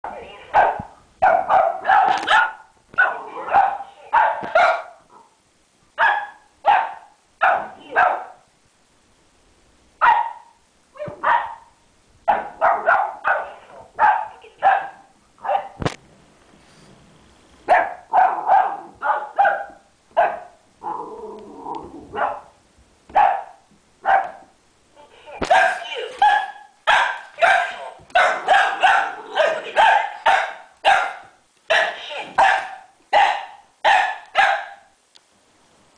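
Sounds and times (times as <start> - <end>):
puppy barking: 0.5 - 5.4, 6.0 - 8.4, 10.0 - 15.8, 17.7 - 20.6, 22.2 - 24.5, 25.4 - 35.0.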